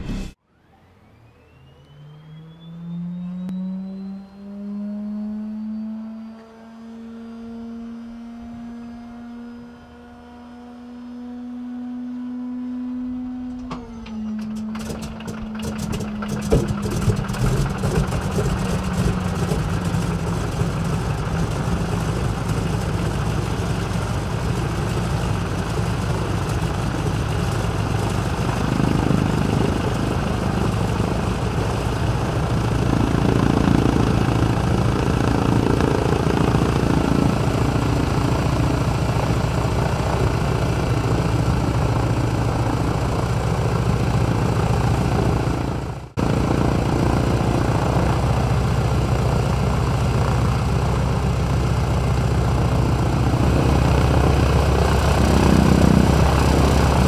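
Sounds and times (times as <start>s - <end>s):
starter motor whining: 13.5s - 22.1s
engine firing cracks: 13.5s - 50.2s
radial engine idling: 13.8s - 57.0s.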